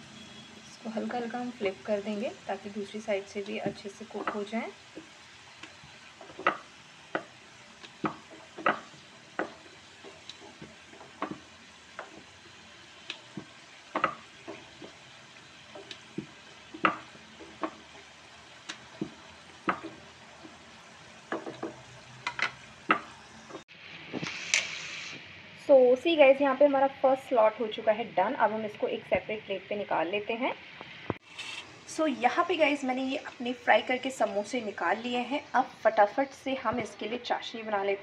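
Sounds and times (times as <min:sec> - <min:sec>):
oil sizzling with pops: 0:00.0 - 0:38.0
spatula stirring in pan: 0:03.0 - 0:25.2.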